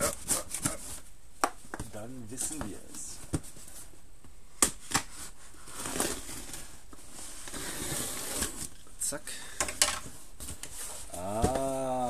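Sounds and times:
cardboard and tape tearing: 4.8 - 6.8, 7.4 - 8.8.

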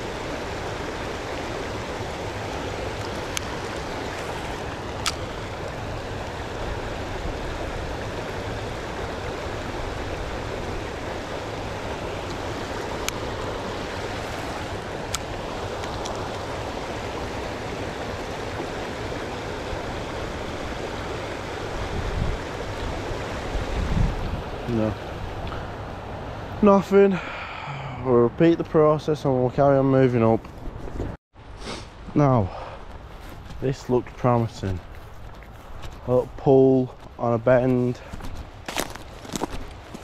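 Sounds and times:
river flowing over rocks: 0.0 - 23.8.

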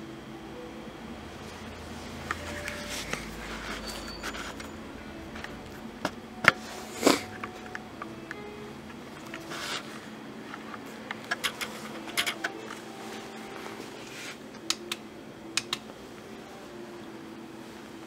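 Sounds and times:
steady low hum: 0.0 - 18.0
small sharp clicks: 15.6 - 15.9.

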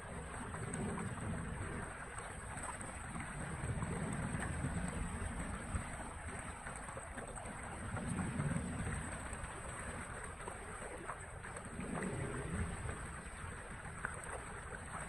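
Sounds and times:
water gurgling down a drain: 0.0 - 15.0.

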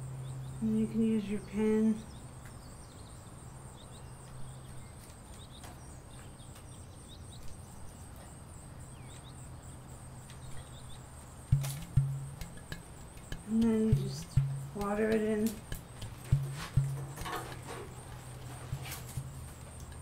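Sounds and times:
insects trilling: 0.0 - 20.0
bird chirps: 10.3 - 18.4.

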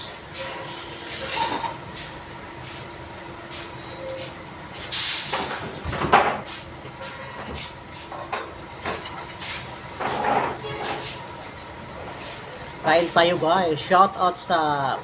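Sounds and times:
sharp loud hiss: 4.8 - 5.4.

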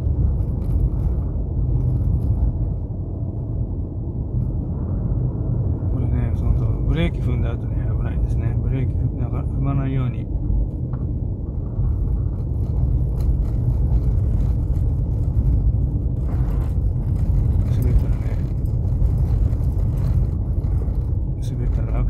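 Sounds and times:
car engine running: 10.0 - 22.0.

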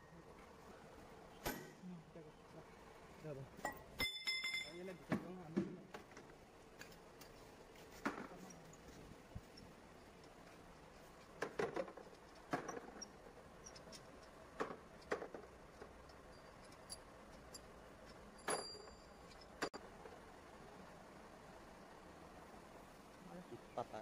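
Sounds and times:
steel nuts clinking: 3.6 - 4.9, 12.0 - 19.8.

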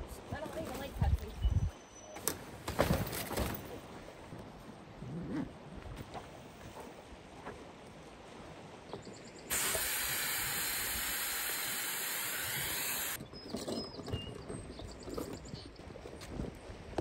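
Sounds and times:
air hissing from valve: 9.5 - 13.2.

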